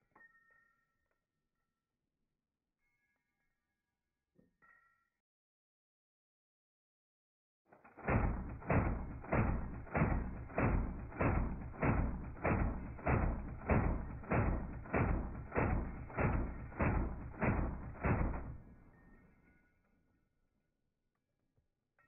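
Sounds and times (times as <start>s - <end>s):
slowed machine gun booms: 7.8s - 18.9s.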